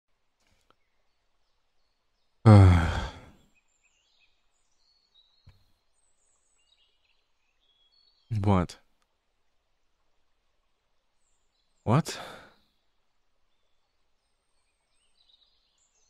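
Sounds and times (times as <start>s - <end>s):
man sighing: 2.5s - 3.4s, 12.0s - 12.6s.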